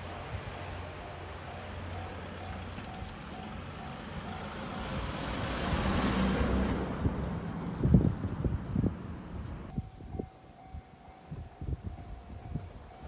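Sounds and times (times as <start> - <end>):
truck passing: 0.0 - 9.7.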